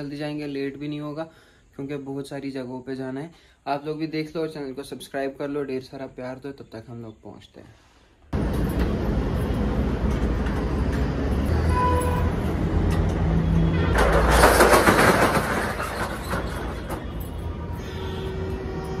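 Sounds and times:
metal shutter rattling up: 13.8s - 17.6s.

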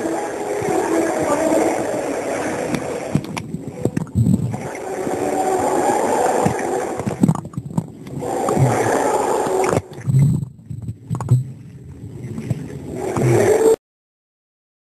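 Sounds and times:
underwater water sloshing and bubbling: 0.0s - 13.8s
low underwater thumps: 2.7s - 5.2s, 6.4s - 13.3s.

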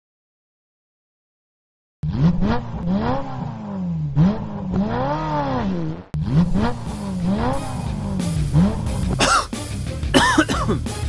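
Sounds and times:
car engine revving: 2.0s - 10.2s.

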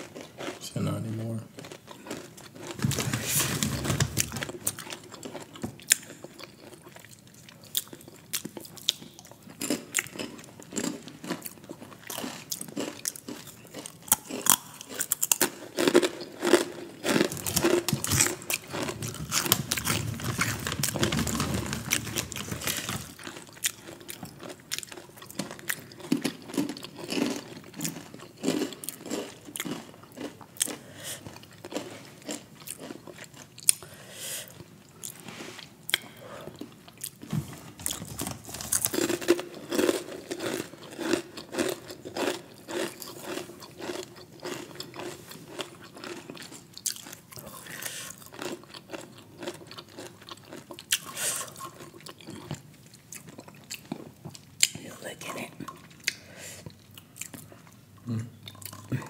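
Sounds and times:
person chewing crunchy chips: 0.0s - 59.0s.

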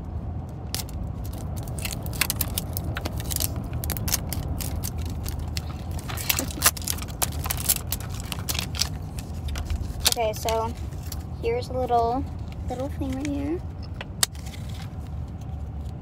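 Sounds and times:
steady low hum: 0.0s - 16.0s
plastic wrapping crackling: 0.7s - 11.3s.

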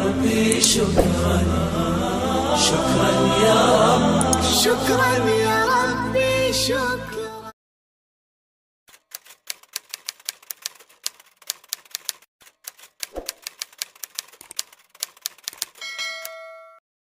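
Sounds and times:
typewriter key clacks: 8.9s - 16.4s
typewriter bell ding: 15.5s - 16.8s.

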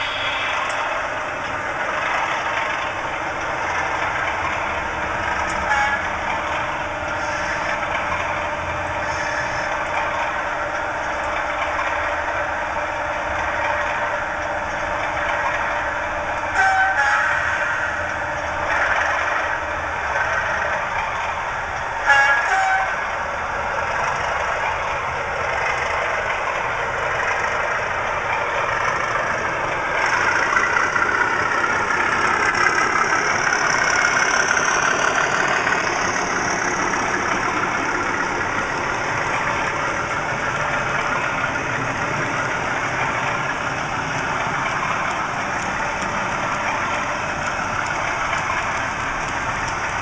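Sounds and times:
model locomotive diesel engine sound: 0.0s - 50.0s
model train running on track: 0.0s - 50.0s.

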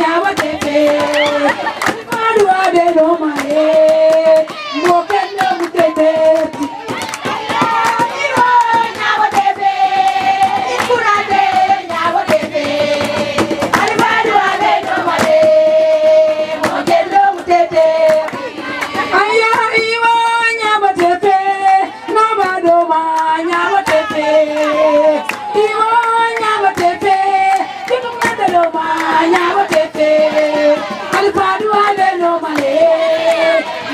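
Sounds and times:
women singing together: 0.0s - 33.9s
sharp hand claps: 0.4s - 11.1s, 13.0s - 14.2s, 22.4s - 33.5s.

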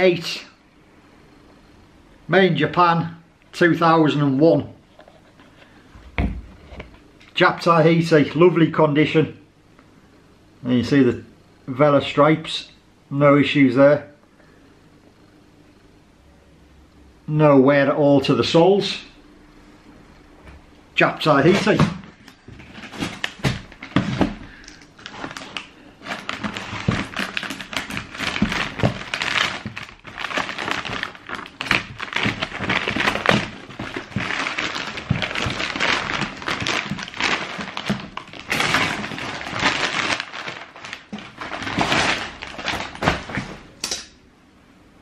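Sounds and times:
cardboard and paper rustling: 21.4s - 43.7s.

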